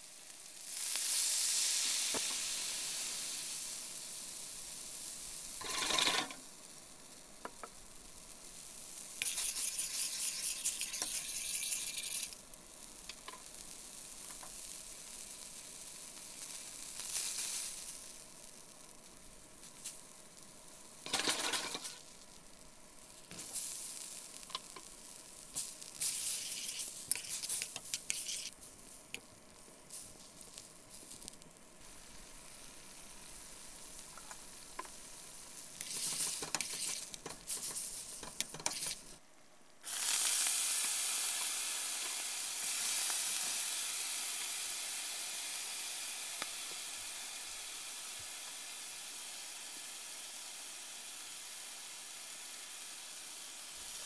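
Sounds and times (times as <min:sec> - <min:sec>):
loud sizzle in oiled pan: 0:00.0 - 0:54.0
sauce simmering in a pan: 0:00.0 - 0:54.0
metal tongs clinking and scraping: 0:05.6 - 0:06.4, 0:21.1 - 0:22.0, 0:35.8 - 0:39.0.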